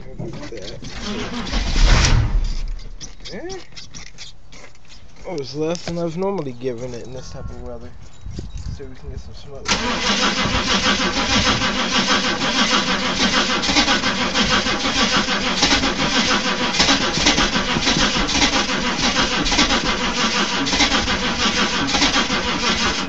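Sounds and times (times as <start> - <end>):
engine starter cranking: 0.0 - 3.4, 9.7 - 23.0.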